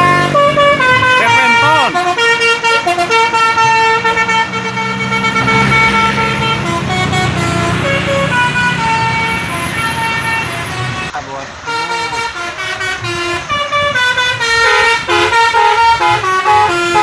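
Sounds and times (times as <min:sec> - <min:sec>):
bus engine running: 0:00.0 - 0:17.0
musical bus horn playing tune: 0:00.0 - 0:17.0.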